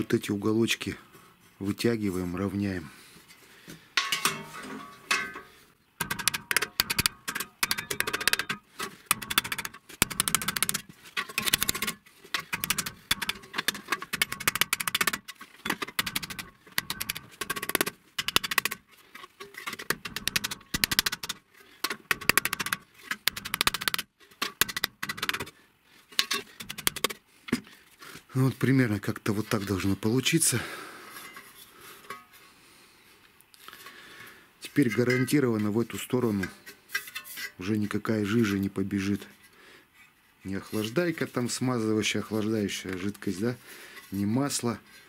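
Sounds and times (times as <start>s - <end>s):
hammer tapping sheet metal: 5.1s - 11.9s.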